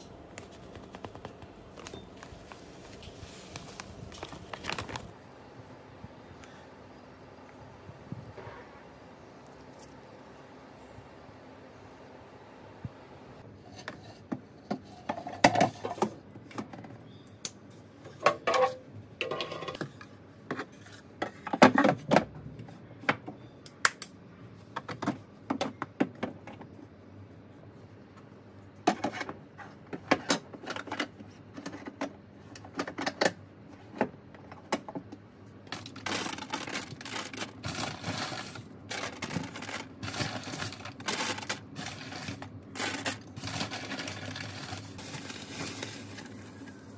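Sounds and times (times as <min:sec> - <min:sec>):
rustling and crackly clicks: 0:00.3 - 0:05.2.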